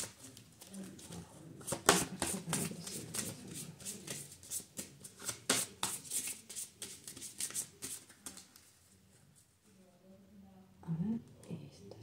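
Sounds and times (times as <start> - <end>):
cards shuffling: 0.0 - 8.7.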